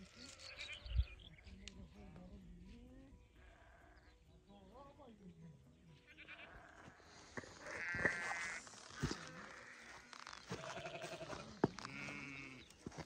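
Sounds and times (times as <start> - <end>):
sheep bleating: 0.0 - 0.9, 3.4 - 4.0, 6.0 - 12.8.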